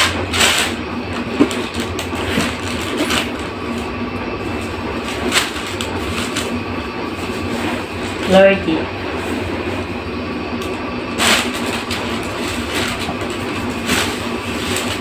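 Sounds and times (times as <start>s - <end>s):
steady background hum: 0.0s - 15.0s
paper and plastic rustling: 11.2s - 15.0s.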